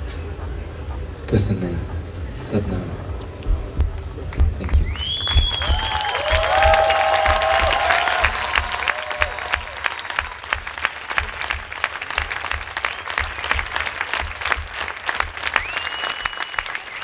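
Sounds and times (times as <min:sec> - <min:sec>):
audience applauding: 0:03.9 - 0:17.0.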